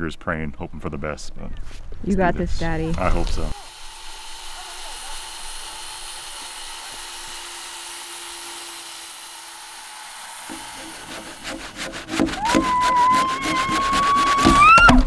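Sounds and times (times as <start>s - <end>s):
handsaw cutting wood: 3.1s - 15.0s.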